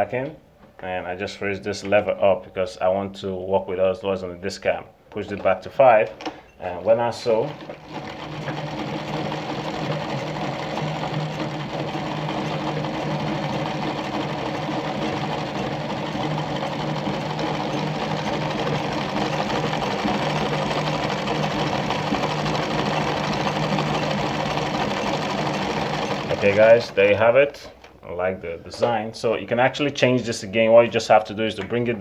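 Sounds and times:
sewing machine running: 6.9s - 27.2s.

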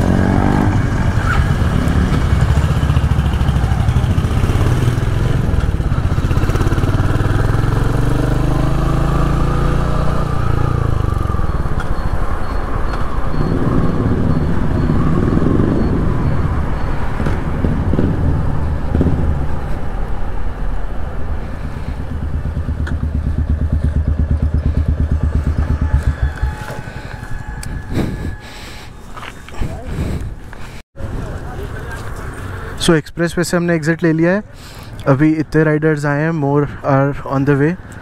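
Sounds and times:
motorcycle engine accelerating: 0.0s - 19.7s, 21.3s - 28.4s.

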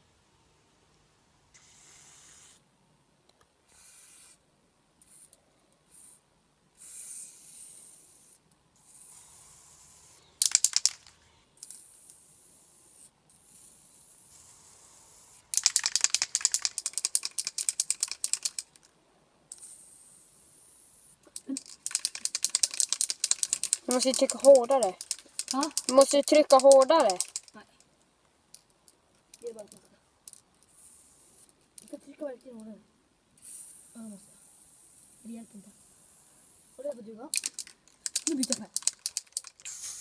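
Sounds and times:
spray-paint can hissing: 1.6s - 2.6s, 3.7s - 4.4s, 6.8s - 11.0s, 11.7s - 18.7s, 21.6s - 27.5s, 36.1s - 40.0s
spray can mixing ball rattling: 10.4s - 12.2s, 15.3s - 18.9s, 21.4s - 27.7s, 36.8s - 40.0s.

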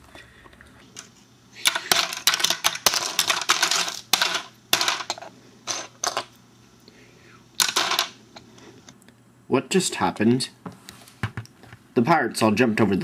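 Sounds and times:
plastic bricks clicking and clattering: 1.6s - 6.3s, 7.6s - 8.2s.

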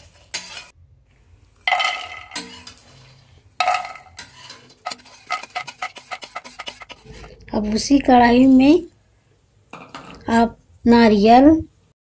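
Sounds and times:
spatula scraping a metal pan: 0.0s - 0.8s, 1.7s - 7.4s.

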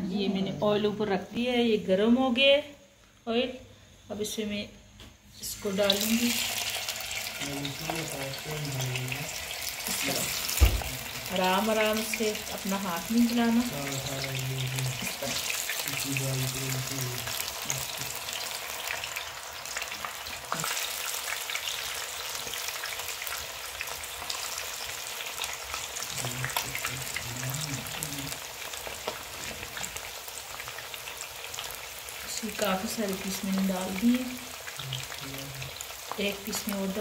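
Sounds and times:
fish deep-frying in oil: 5.4s - 37.0s.

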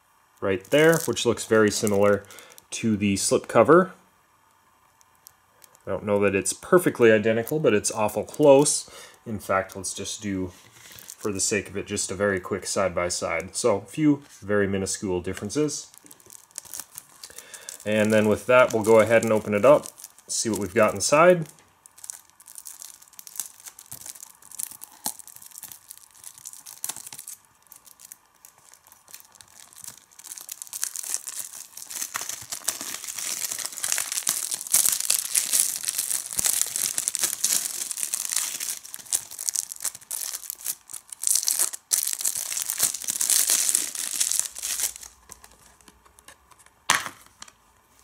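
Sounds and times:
plastic film crinkling and tearing: 0.4s - 3.7s, 5.0s - 5.9s, 6.7s - 8.8s, 9.4s - 11.9s, 15.2s - 46.7s
shrink-wrap scratching and clicks: 15.3s - 46.7s.

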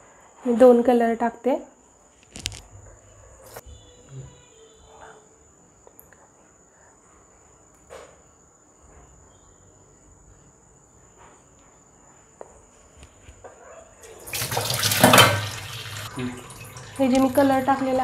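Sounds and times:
steel bowls clinking: 14.7s - 18.0s.

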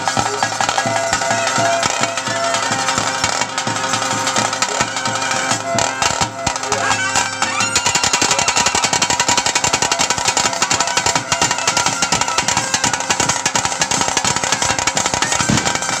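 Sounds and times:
drums beaten fast: 0.0s - 16.0s.

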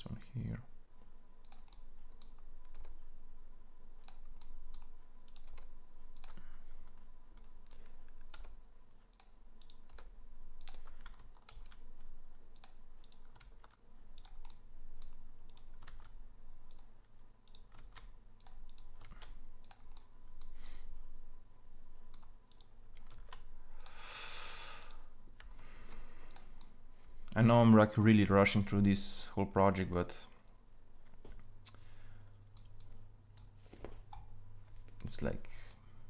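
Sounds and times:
faint steady hum: 0.0s - 36.0s
keyboard and mouse clicking: 1.4s - 3.0s, 4.0s - 20.8s, 22.1s - 24.0s, 26.3s - 26.8s, 32.5s - 35.8s.

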